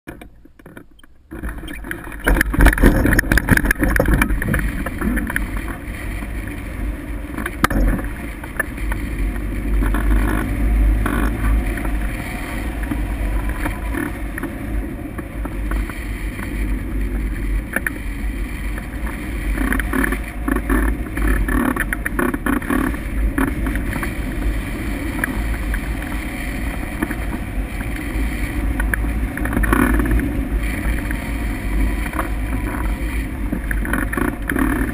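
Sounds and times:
wind buffeting microphone: 0:01.2 - 0:34.9.

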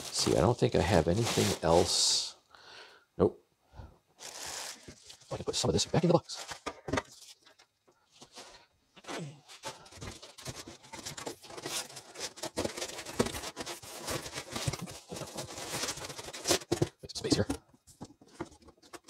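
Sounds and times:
plastic packaging crinkling: 0:00.0 - 0:01.9, 0:04.2 - 0:06.6.

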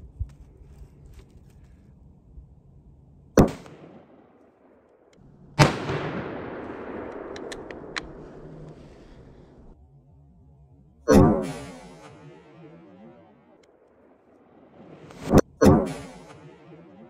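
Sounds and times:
rifle shots with echo: 0:03.4 - 0:09.6.

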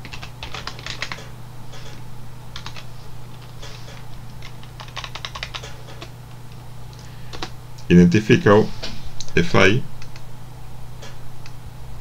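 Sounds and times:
keyboard typing: 0:00.0 - 0:01.9, 0:02.6 - 0:06.1, 0:07.3 - 0:07.5.

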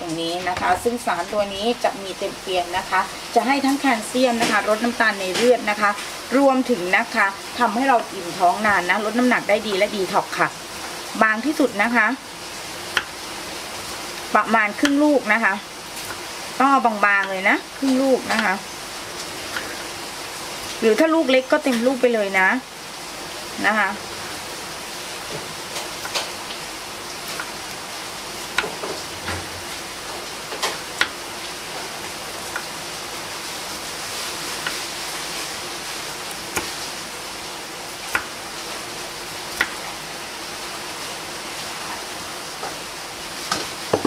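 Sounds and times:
steady hiss: 0:00.0 - 0:44.0.

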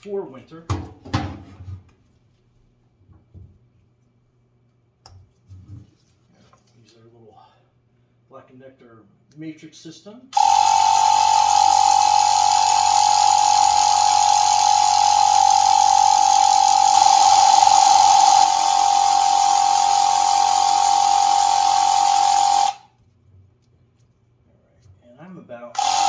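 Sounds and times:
tyre inflator humming: 0:10.4 - 0:23.0, 0:25.8 - 0:26.0.

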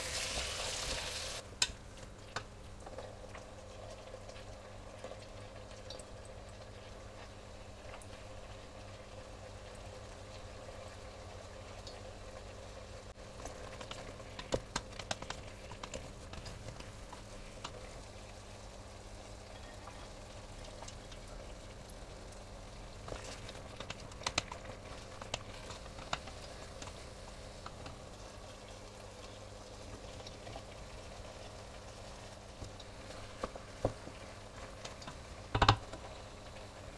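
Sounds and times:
broth bubbling in a saucepan: 0:00.0 - 0:36.9.

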